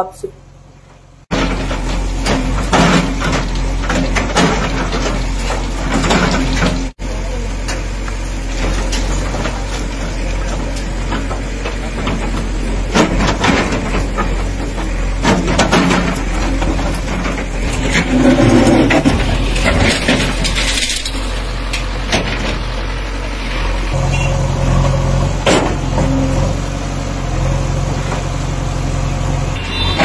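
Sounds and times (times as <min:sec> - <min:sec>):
diesel engine running under load: 0:00.0 - 0:30.0
concrete and brick crashing: 0:08.6 - 0:21.5.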